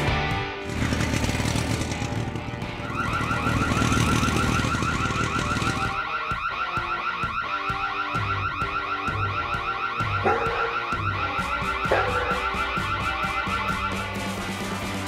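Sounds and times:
background music: 0.0 - 15.0
electronic alarm siren warbling: 2.8 - 14.3.

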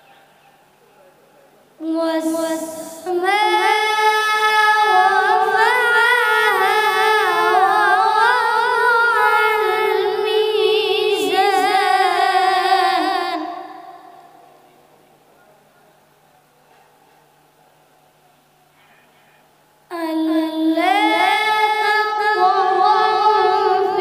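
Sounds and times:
boy reciting melodically: 1.8 - 14.2, 19.9 - 24.0.

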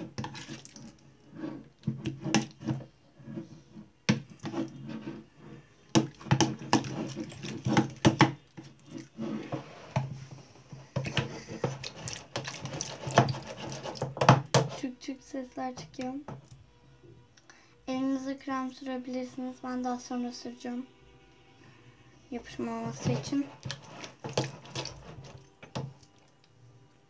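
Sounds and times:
spoon stirring slime in plastic bowl: 0.0 - 14.9, 22.4 - 26.2.

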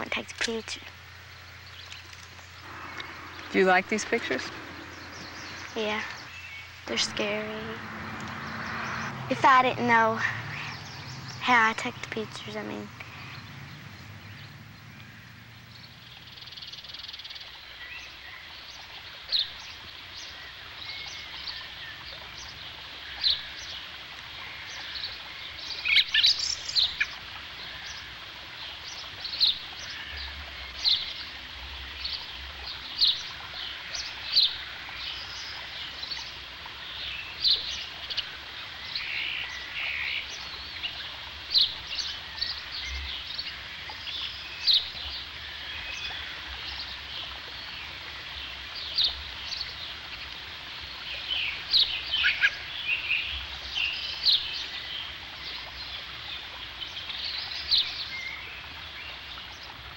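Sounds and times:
high chirping calls: 0.0 - 18.2
steady hiss: 0.0 - 59.7.

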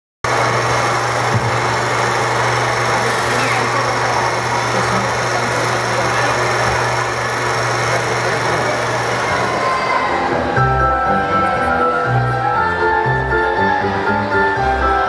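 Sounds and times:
film projector whirring: 0.3 - 10.1.

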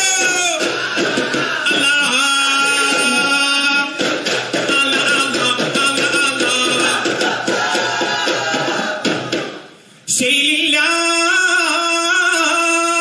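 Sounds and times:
frame drum strikes: 0.0 - 9.7
group singing in chorus: 0.0 - 10.8.

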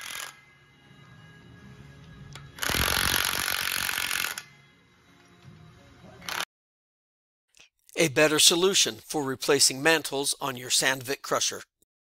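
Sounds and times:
cordless impact wrench running: 0.0 - 0.4, 2.6 - 4.5
faint background music: 0.0 - 6.4.

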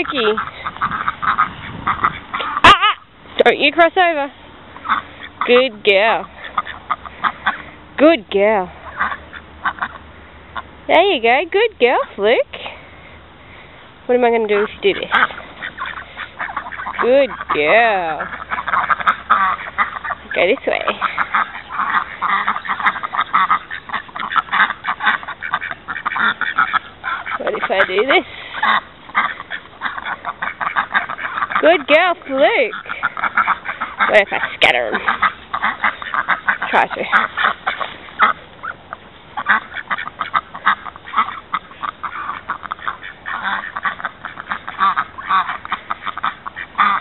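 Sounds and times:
ducks quacking: 0.0 - 47.0.

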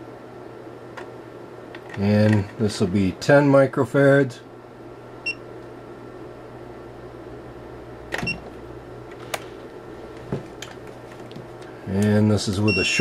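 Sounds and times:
steady low hum: 0.0 - 13.0
clicks and knocks of handling parts: 10.1 - 12.2.

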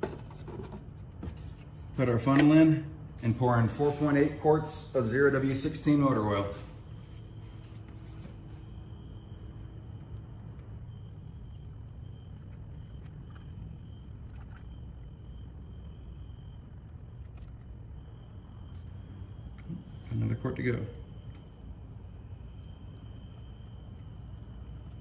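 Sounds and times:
oil pouring through a funnel: 10.5 - 15.4.

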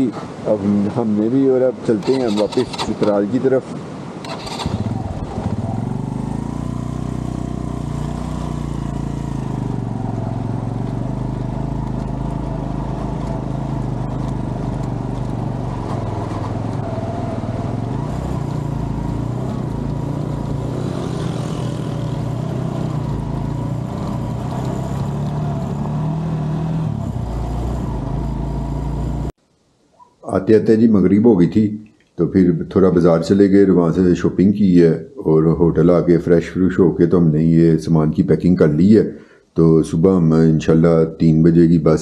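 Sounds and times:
vehicle engine running: 4.4 - 29.3.

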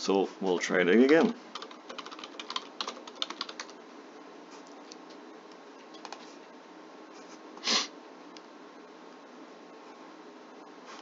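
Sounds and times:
computer keyboard clicks: 1.1 - 3.8, 5.9 - 6.2
room hiss: 6.2 - 11.0
person sniffing through nose: 7.6 - 8.0.

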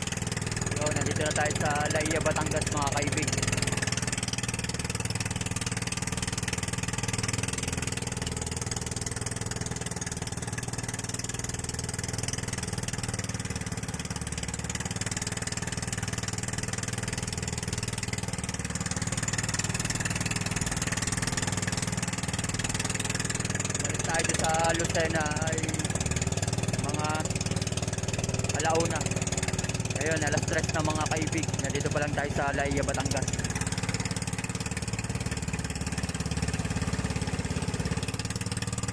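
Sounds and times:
boat engine running: 0.0 - 38.9.

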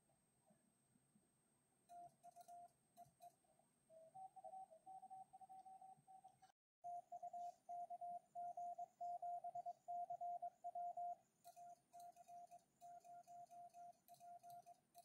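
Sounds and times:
morse code tones: 6.9 - 11.2.

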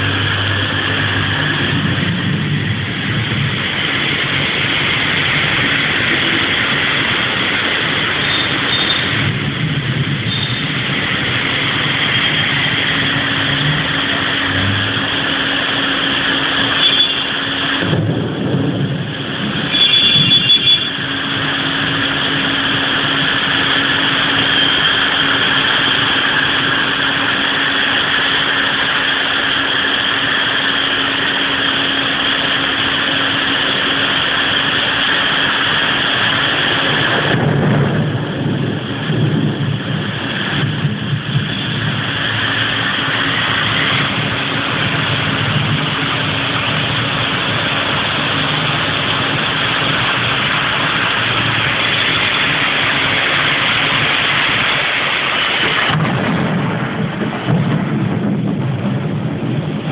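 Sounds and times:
heavy rain pouring: 0.0 - 59.9
low hum: 0.0 - 59.9
sharp high-pitched sounds: 10.2 - 18.1, 19.4 - 28.6.

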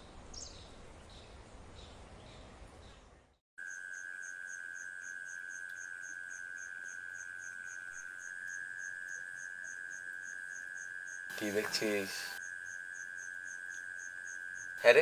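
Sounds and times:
crickets chirping: 3.6 - 15.0
crickets trilling: 3.6 - 15.0.

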